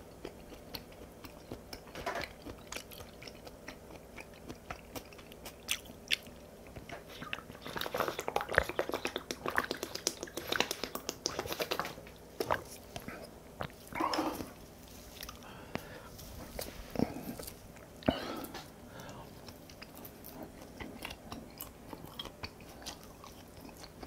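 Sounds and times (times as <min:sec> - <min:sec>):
close chewing with mouth clicks: 0:00.0 - 0:24.0
gulping water from plastic bottle: 0:06.9 - 0:14.6.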